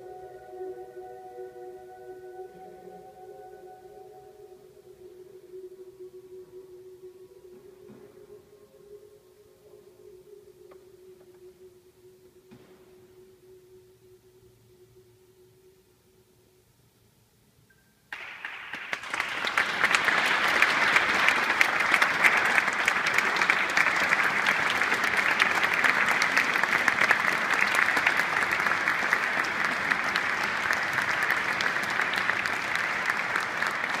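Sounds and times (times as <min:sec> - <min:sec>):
audience applauding: 0:18.1 - 0:34.0.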